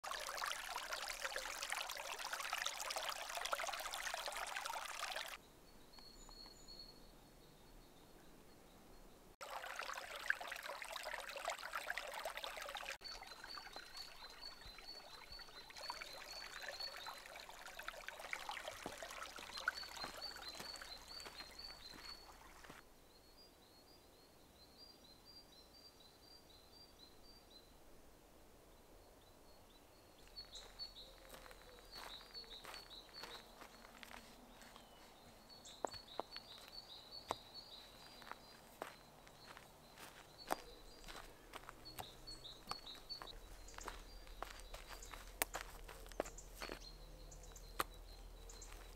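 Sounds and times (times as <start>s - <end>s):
creek water over stones: 0.0s - 5.4s, 9.4s - 22.9s, 30.0s - 48.9s
small bird chirping: 18.4s - 24.3s, 30.1s - 48.9s.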